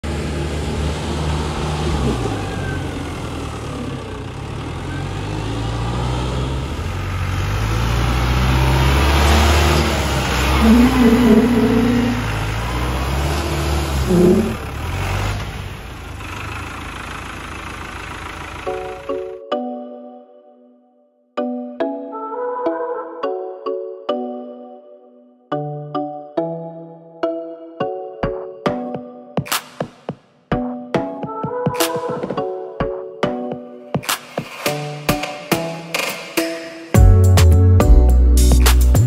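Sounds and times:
tractor diesel engine passing: 0.0 - 19.4.

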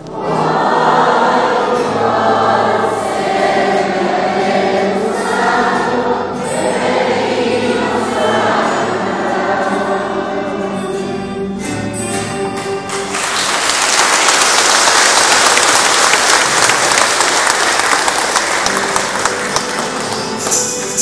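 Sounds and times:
congregation singing: 0.0 - 12.2, 13.0 - 21.0
music: 0.0 - 21.0
crowd applause: 12.9 - 21.0.

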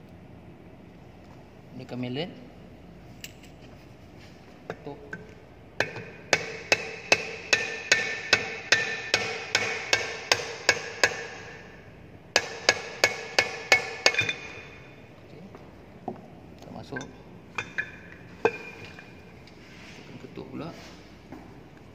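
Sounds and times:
metal-on-metal knocks ringing: 12.4 - 14.9.

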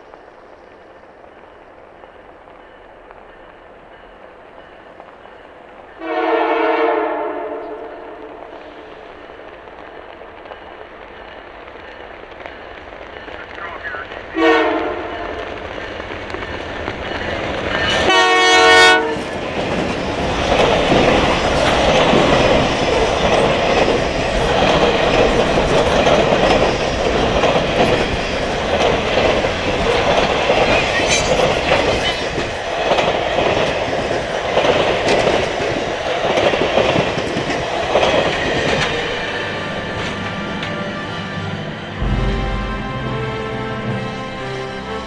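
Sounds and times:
train wheels rumbling on rail: 0.0 - 45.0
locomotive horn blast: 6.0 - 8.4, 14.4 - 15.3, 18.0 - 19.2, 40.6 - 45.0.

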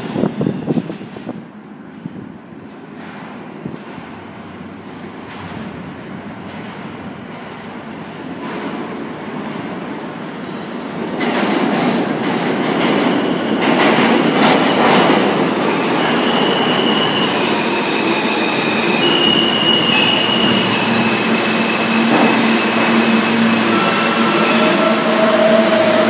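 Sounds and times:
train braking: 12.9 - 26.0
high wheel squeals: 16.2 - 26.0.

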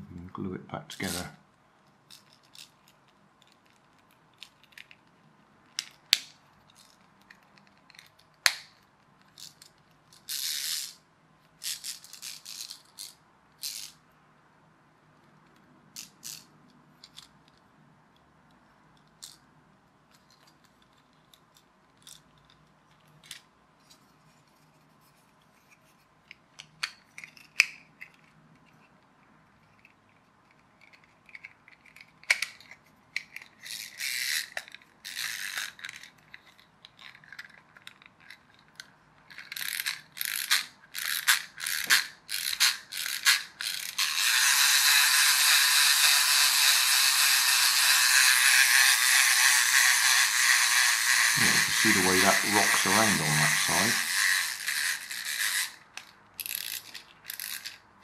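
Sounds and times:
plastic toy clicks: 16.0 - 16.5, 30.8 - 57.8
ratchet-like rattling clicks: 30.8 - 57.8
clockwork mechanism whirring: 39.5 - 55.8.

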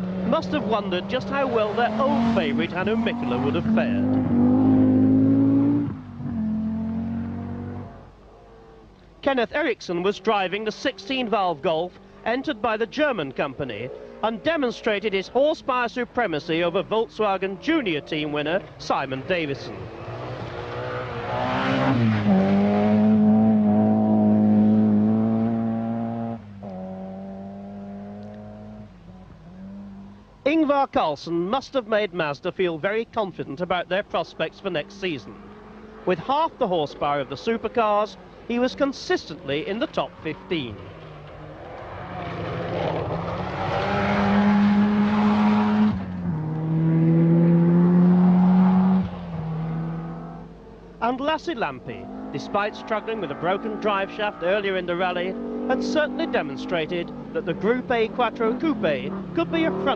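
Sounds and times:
rally car engine passing by: 0.0 - 8.8, 19.7 - 30.2, 34.4 - 50.5, 51.9 - 59.9.

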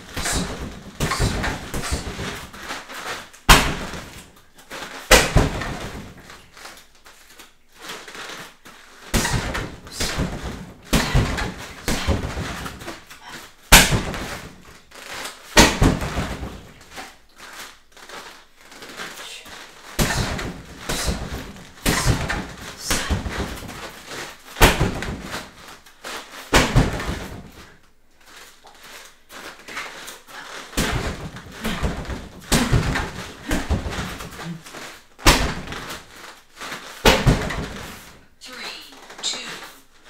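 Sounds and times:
strikes thudding into heavy bag: 0.0 - 4.2, 5.1 - 6.3, 13.7 - 14.7, 15.6 - 17.0, 19.9 - 25.7, 26.4 - 27.7, 30.7 - 36.0, 36.6 - 38.2
soft rustling: 5.9 - 13.6, 16.3 - 40.0.

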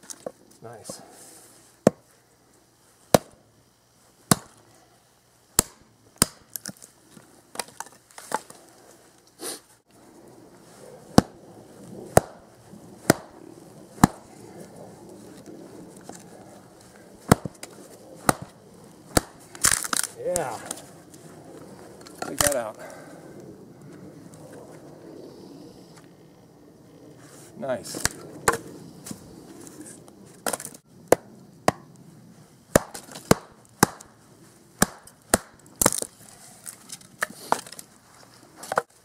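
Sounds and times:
tomahawk chopping wood: 1.8 - 2.1, 3.1 - 3.4, 4.3 - 4.6, 5.6 - 6.8, 11.1 - 11.4, 12.1 - 12.4, 13.0 - 13.4, 14.0 - 14.3, 17.2 - 20.8, 22.2 - 22.6, 28.0 - 28.6, 30.4 - 31.9, 32.7 - 34.2, 34.8 - 37.8.

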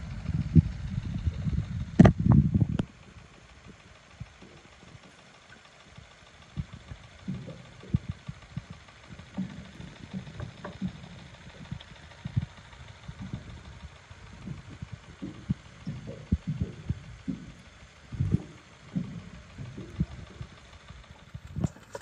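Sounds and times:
soft low thumps and knocks: 0.0 - 2.9, 6.6 - 20.6.

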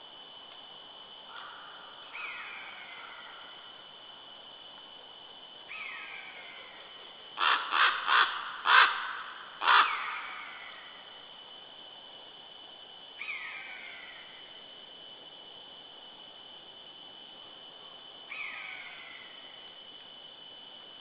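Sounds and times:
faint high-pitched whine: 0.0 - 21.0
bird cawing harshly: 7.4 - 9.0, 9.6 - 10.2.

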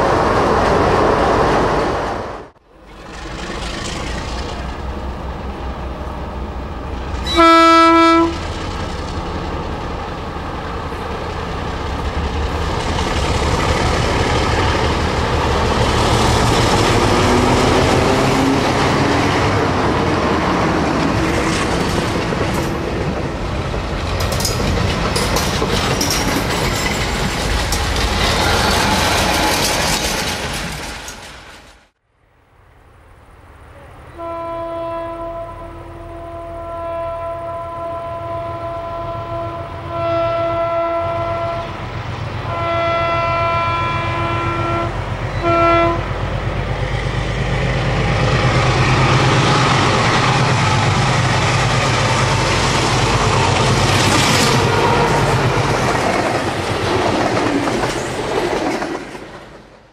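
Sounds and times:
diesel locomotive engine running: 2.6 - 31.9, 35.3 - 59.9
wheels clattering over rails: 2.8 - 6.1, 8.3 - 31.9
locomotive horn blast: 7.2 - 8.5, 34.0 - 46.2.

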